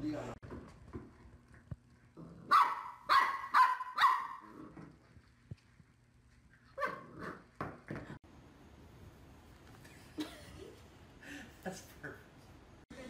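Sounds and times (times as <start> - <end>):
puppy barking: 2.4 - 4.5, 6.8 - 7.4.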